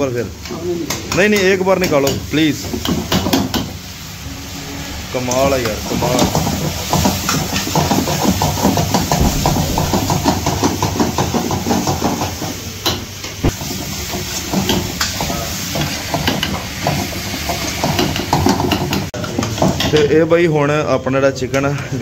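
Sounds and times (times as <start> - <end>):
chicken sizzling in a wok: 0.0 - 21.1
gas flame flaring: 3.7 - 14.4
ladle knocking on pan: 6.9 - 12.3.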